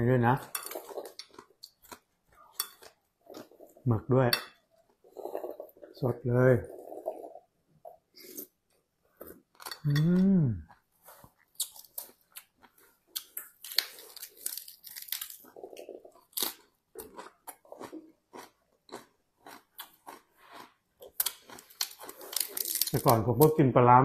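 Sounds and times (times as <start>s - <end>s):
person chewing food: 0.4s - 3.8s, 4.7s - 5.9s, 6.7s - 23.0s
person humming mmm: 9.8s - 10.7s.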